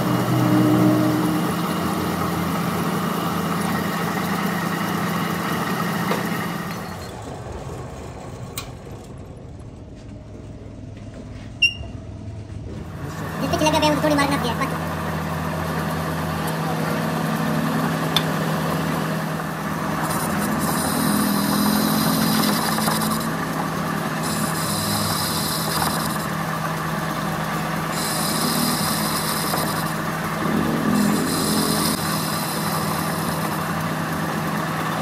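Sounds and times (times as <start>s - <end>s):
metal lathe running: 0.0s - 8.4s, 12.9s - 35.0s
high-pitched ringing of tool cutting: 20.0s - 26.4s, 27.9s - 34.2s.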